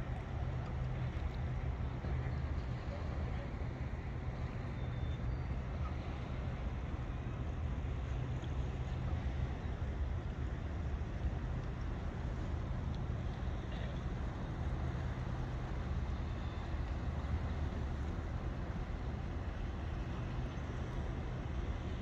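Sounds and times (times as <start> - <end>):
low outdoor rumble: 0.0 - 22.0.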